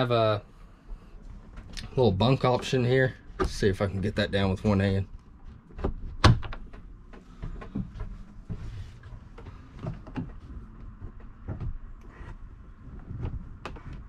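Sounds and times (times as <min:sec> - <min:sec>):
bunk frame knocking and clicking: 0:05.3 - 0:14.0.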